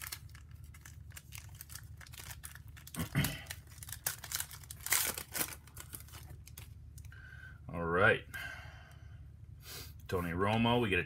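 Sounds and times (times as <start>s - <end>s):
foil wrapper tearing and crinkling: 0.0s - 7.1s.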